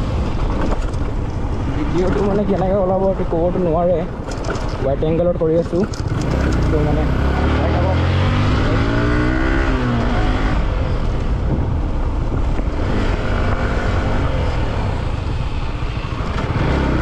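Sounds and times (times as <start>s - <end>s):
tyres rattling on gravel road: 0.0s - 7.2s
motorcycle engine running: 5.8s - 17.0s.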